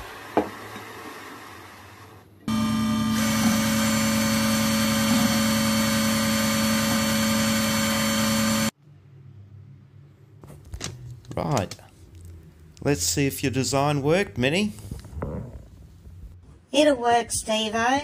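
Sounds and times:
bench grinder running: 0:02.5 - 0:08.8.

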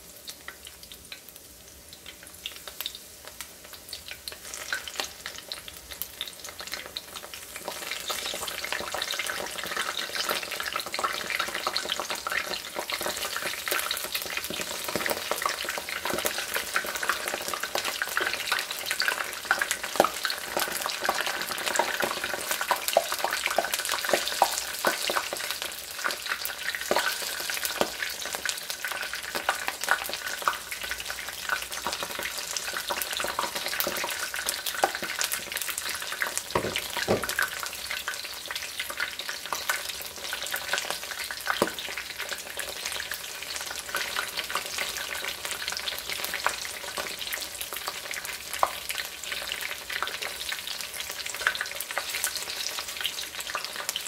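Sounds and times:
deep-frying sizzle and pops: 0:00.0 - 0:54.0
metal tongs knocking in pan: 0:36.6 - 0:37.4.

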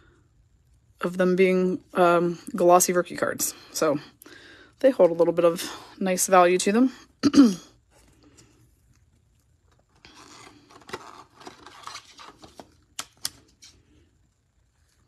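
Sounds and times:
card sliding into plastic sleeve: 0:10.2 - 0:13.8.

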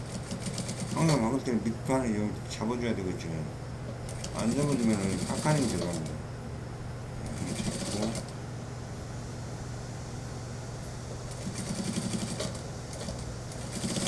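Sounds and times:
sewing machine stitching: 0:04.1 - 0:06.1, 0:07.3 - 0:08.3, 0:11.3 - 0:14.0.

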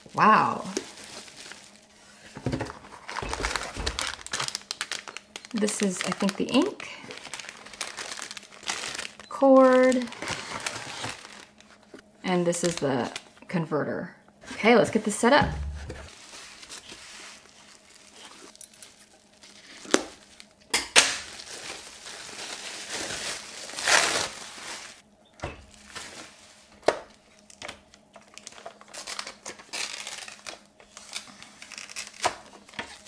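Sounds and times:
bubble wrap crinkling: 0:00.0 - 0:13.4, 0:15.0 - 0:25.0, 0:25.7 - 0:33.0
sharp knocks: 0:15.4 - 0:16.1.

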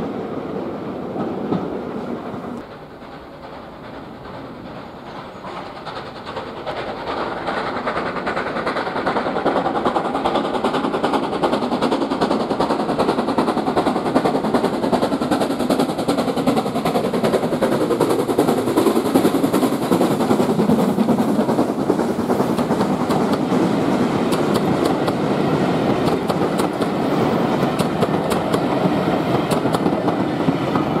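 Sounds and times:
steam locomotive passing: 0:00.0 - 0:31.0
wheels clicking over rail joints: 0:02.3 - 0:31.0.

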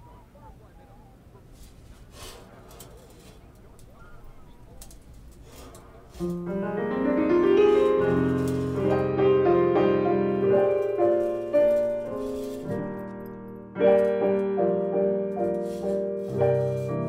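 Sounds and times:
piano chords: 0:06.0 - 0:17.0.

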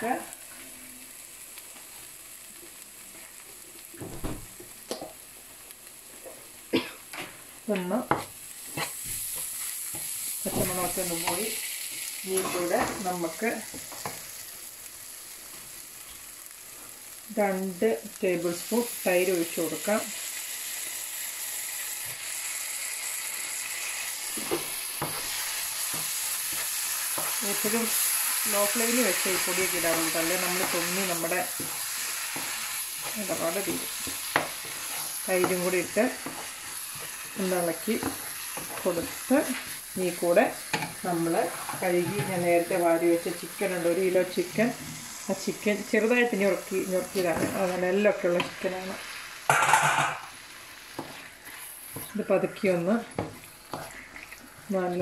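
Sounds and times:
food sizzling in a pan: 0:00.0 - 0:55.0
wooden spatula scraping pan: 0:41.4 - 0:42.7, 0:51.0 - 0:52.2.

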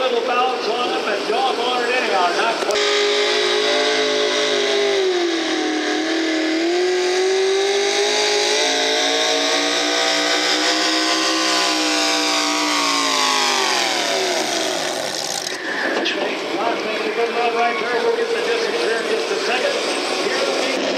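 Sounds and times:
tractor engine at full throttle: 0:00.0 - 0:20.9.

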